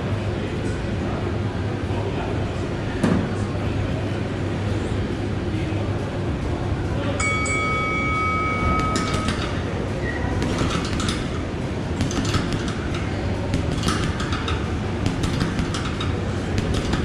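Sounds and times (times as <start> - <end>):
gloves punching heavy bag: 10.4 - 17.0.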